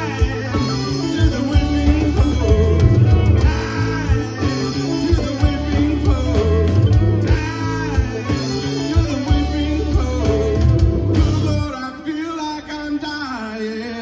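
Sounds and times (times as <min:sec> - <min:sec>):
bass guitar: 0:00.0 - 0:13.3
drums: 0:00.0 - 0:14.0
electric guitars: 0:00.0 - 0:14.0
keyboards: 0:00.0 - 0:14.0
man singing: 0:00.0 - 0:14.0.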